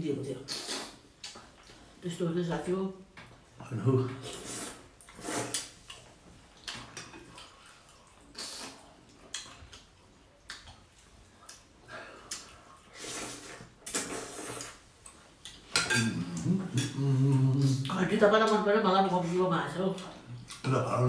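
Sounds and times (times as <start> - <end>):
people slurping noodle soup: 0.4 - 1.4, 4.1 - 6.0, 6.7 - 9.5, 11.9 - 14.9, 16.0 - 17.9.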